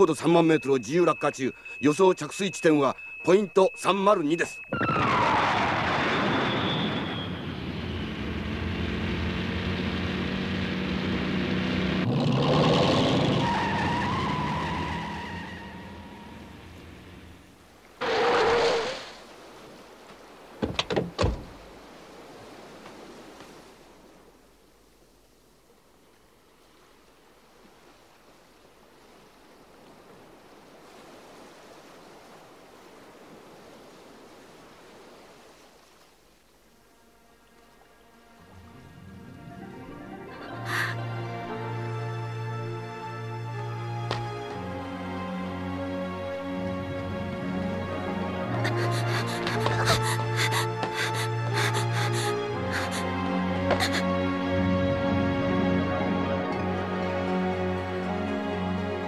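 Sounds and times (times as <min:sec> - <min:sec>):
falling whistling rush: 0:00.0 - 0:10.6, 0:12.9 - 0:16.8
faint sea waves: 0:00.0 - 0:59.0
car engine humming: 0:07.4 - 0:17.7.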